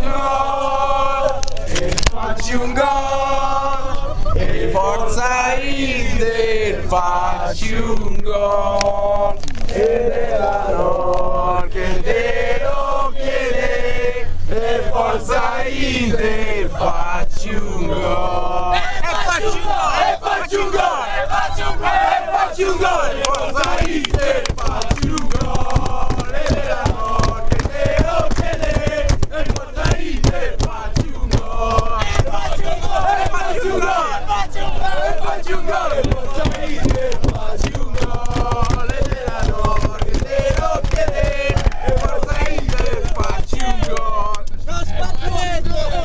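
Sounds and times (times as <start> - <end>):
crowd of men chanting: 0.0 - 46.0
bangs on ceiling keeping time: 36.0 - 41.7.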